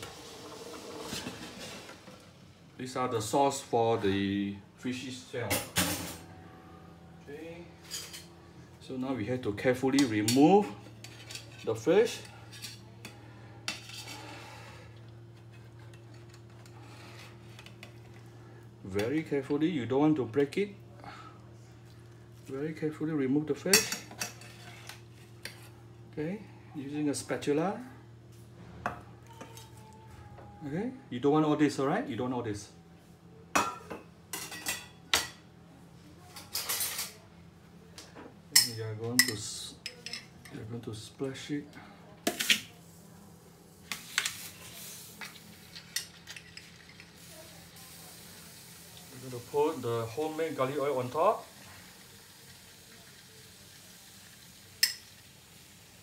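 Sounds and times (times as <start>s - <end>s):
steel cookware clinking: 54.8s - 55.1s.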